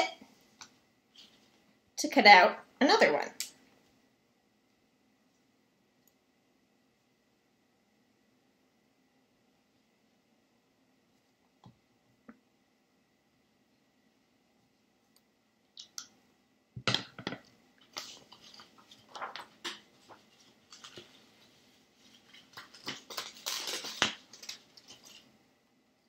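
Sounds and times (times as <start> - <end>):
paper rustling: 17.8 - 25.3.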